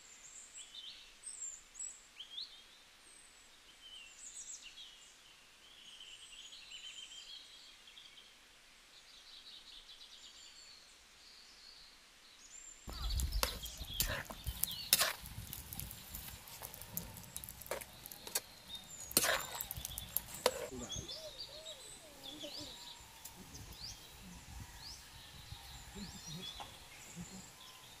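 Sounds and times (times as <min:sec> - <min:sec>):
small birds chirping: 0:00.0 - 0:28.0
ladle scraping in steel pot: 0:12.9 - 0:20.7.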